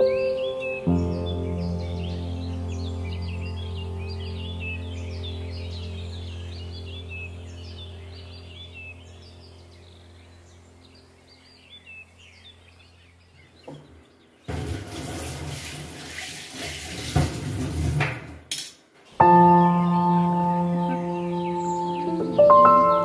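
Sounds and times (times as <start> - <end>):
soft background music: 0.0 - 9.0, 19.2 - 23.0
music with long held tones: 0.0 - 11.3, 19.2 - 23.0.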